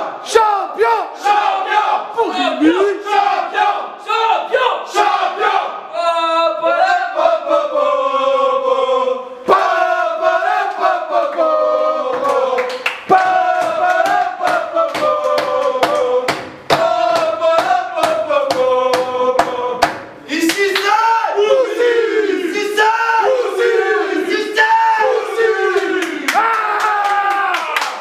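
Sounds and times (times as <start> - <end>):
men chanting in unison: 0.0 - 26.5
sharp rhythmic hits: 13.1 - 20.8.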